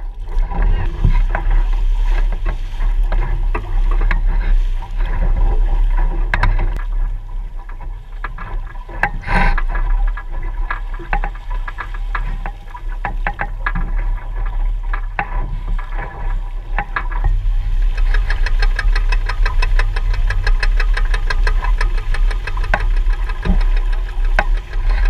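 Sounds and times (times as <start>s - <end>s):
small crackling splashes: 0.0s - 25.0s
water rushing along boat hull: 0.0s - 25.0s
wind rumble on microphone: 0.0s - 25.0s.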